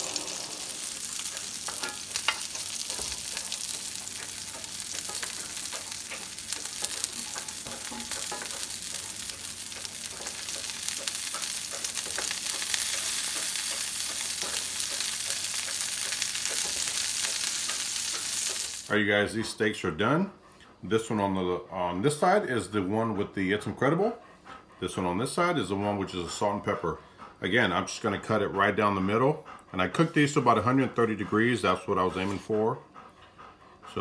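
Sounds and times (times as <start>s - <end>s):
steaks sizzling in a skillet: 0.0s - 18.9s.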